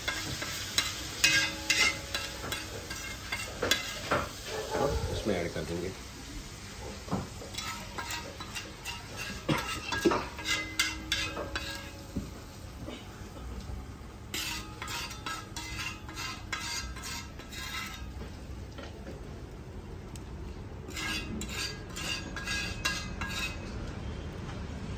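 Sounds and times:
metal spatula scraping a pan: 0.0s - 5.4s, 6.9s - 12.2s, 14.2s - 18.3s, 20.9s - 23.8s.

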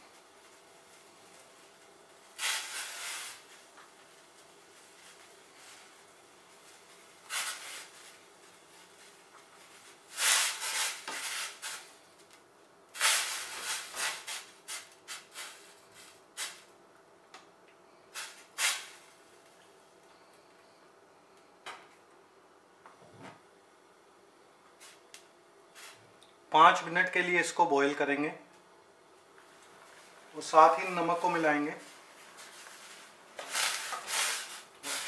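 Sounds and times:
gas burner hiss: 0.0s - 16.7s, 17.9s - 19.4s, 29.4s - 35.0s.

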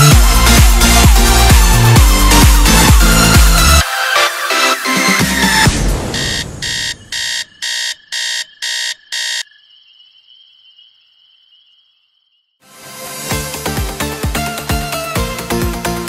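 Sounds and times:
phone alarm beeping: 6.1s - 10.0s.

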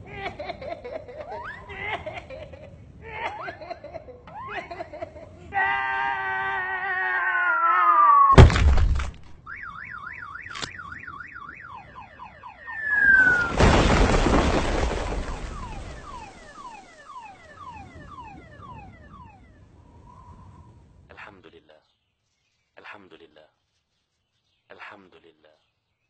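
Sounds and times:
loud rock crash: 8.4s - 9.4s, 12.8s - 16.5s
warbling alarm tone: 9.5s - 13.6s, 15.3s - 19.6s
falling whistle: 9.5s - 20.8s.

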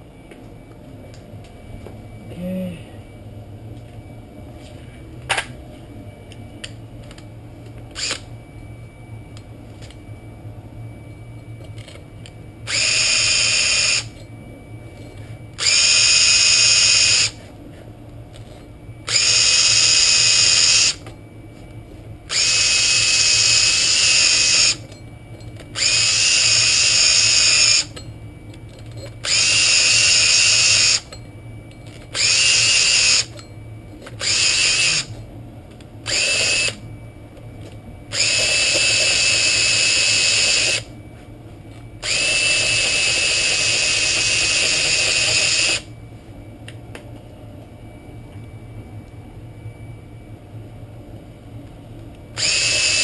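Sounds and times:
power drill with brush scrubbing: 36.1s - 36.8s, 52.4s - 53.0s.

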